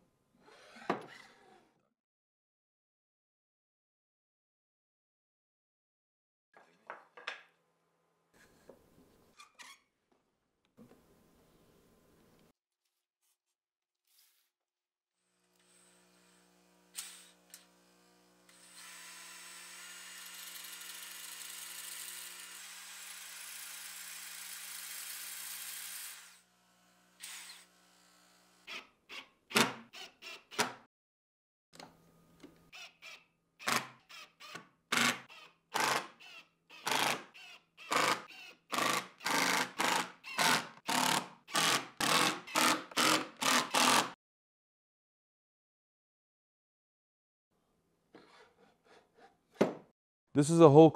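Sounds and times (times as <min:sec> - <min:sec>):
cordless drill drilling into wood: 0:18.5 - 0:26.5, 0:33.6 - 0:44.2.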